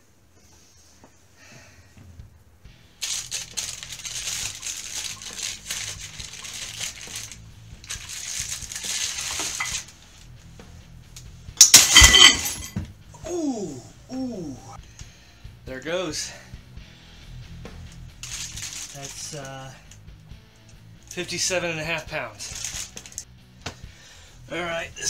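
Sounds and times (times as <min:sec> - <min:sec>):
plastic bag rustling: 0:03.0 - 0:09.9, 0:18.2 - 0:19.4, 0:22.4 - 0:23.2
loud crash with metallic clanging: 0:11.6 - 0:12.8.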